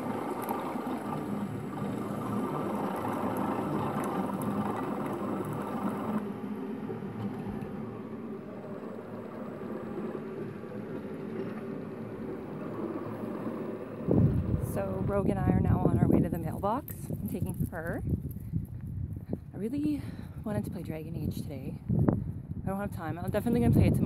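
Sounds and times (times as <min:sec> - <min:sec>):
coffee pouring into mug: 0:00.0 - 0:06.2
coffee maker pump running: 0:00.0 - 0:16.4.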